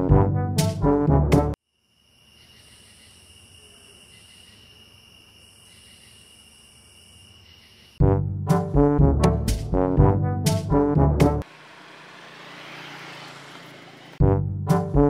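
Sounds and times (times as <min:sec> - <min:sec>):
brass band music: 0:00.0 - 0:01.6, 0:08.0 - 0:11.4, 0:14.2 - 0:15.0
insects trilling: 0:01.6 - 0:08.0.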